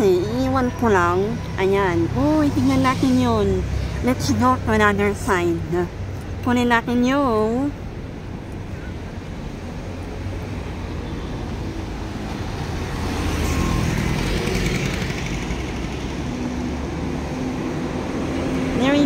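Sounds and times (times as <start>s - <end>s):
cars passing: 0.0s - 19.0s
scooters going by: 11.1s - 19.0s.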